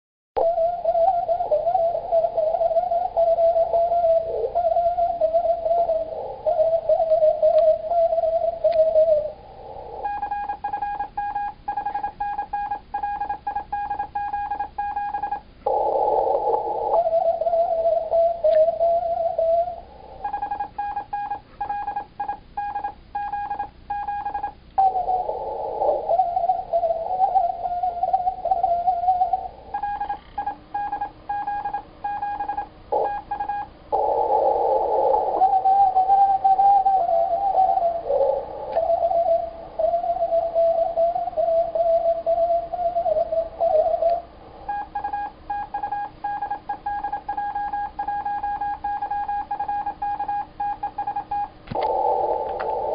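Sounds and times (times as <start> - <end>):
whistled morse code: 0.4 - 9.4, 25.9 - 34.2, 34.8 - 52.9.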